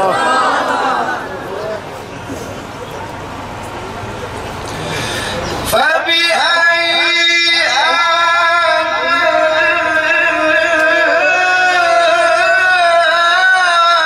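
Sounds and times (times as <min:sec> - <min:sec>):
man chanting over loudspeakers: 0:05.7 - 0:14.0.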